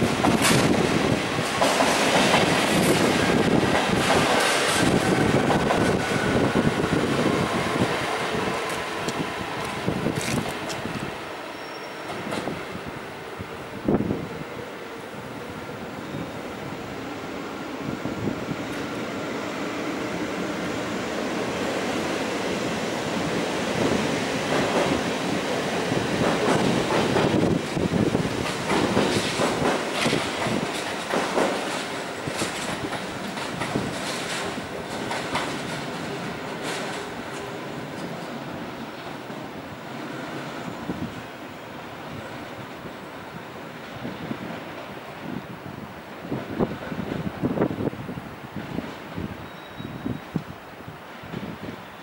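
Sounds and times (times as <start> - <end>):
electric train rolling rumble: 0.0 - 52.0
wheels clicking over rail joints: 26.2 - 38.4.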